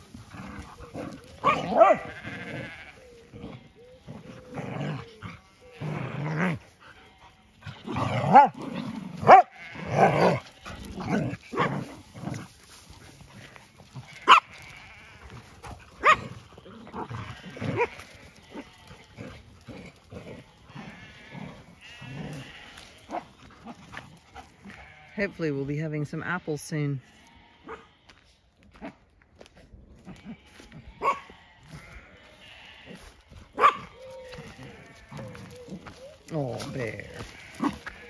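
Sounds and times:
dogs wavering cries: 0.0 - 8.6, 9.2 - 12.1, 14.1 - 23.8, 30.9 - 38.0
dogs yelping: 0.0 - 13.2, 14.0 - 25.0, 27.6 - 28.0, 30.1 - 38.0.

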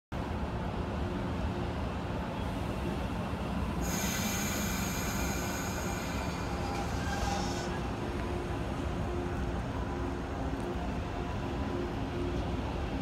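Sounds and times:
electric train humming: 0.2 - 13.0
high whistling hiss: 3.8 - 7.8.

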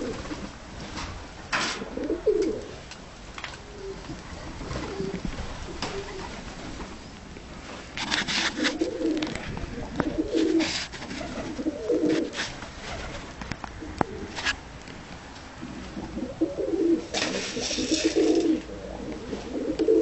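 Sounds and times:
pigeons cooing: 0.0 - 0.6, 1.8 - 2.8, 3.6 - 6.9, 8.4 - 14.6, 15.6 - 20.0
scratchy noise bursts: 7.8 - 13.4.

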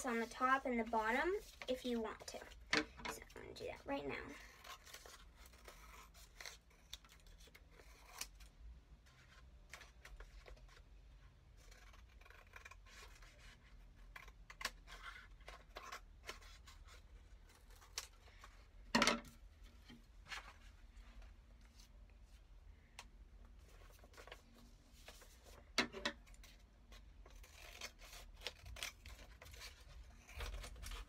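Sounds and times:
scissors snipping paper: 26.4 - 31.0.

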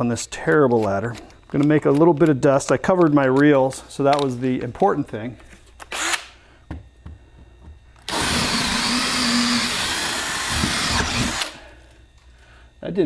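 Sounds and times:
cordless drill boring into wood: 8.1 - 11.6.

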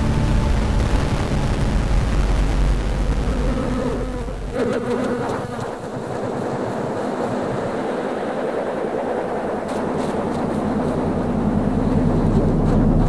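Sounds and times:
low rumble: 0.0 - 4.6, 5.6 - 13.0
honey bees buzzing: 2.1 - 6.0.

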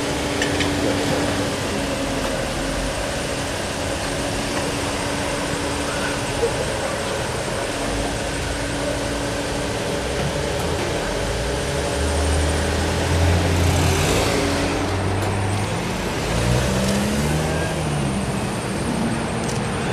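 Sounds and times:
car engines running: 0.0 - 19.9.

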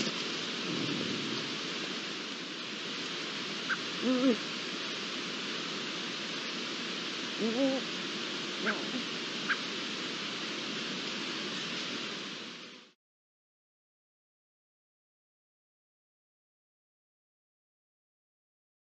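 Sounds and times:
steady hiss: 0.0 - 13.0
lynx wavering calls: 3.6 - 4.5, 7.2 - 9.8.

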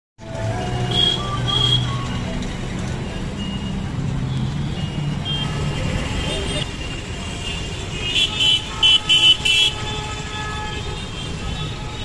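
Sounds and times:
vehicle engine humming: 0.2 - 7.2
busy street traffic: 0.2 - 12.0.

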